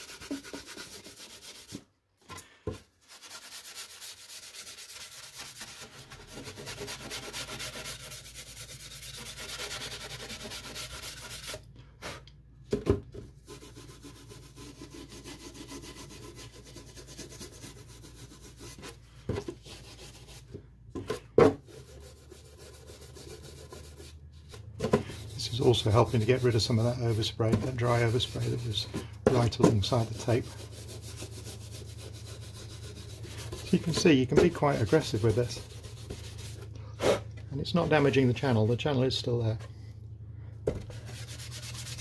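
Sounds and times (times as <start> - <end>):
steel wool rubbing on paint: 0.0 - 1.8, 3.0 - 11.6, 13.4 - 19.0, 21.7 - 36.7, 40.9 - 42.0.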